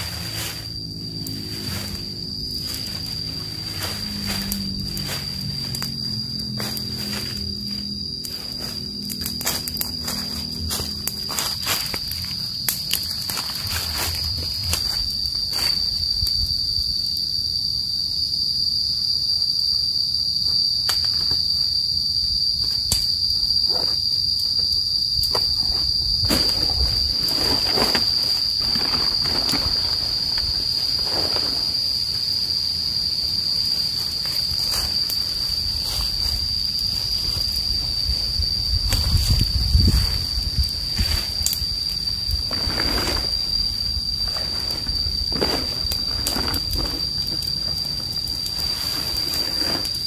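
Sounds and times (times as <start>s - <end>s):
dry leaves crackling underfoot: 0.0s - 15.9s, 25.9s - 50.0s
high-pitched insect drone: 0.0s - 50.0s.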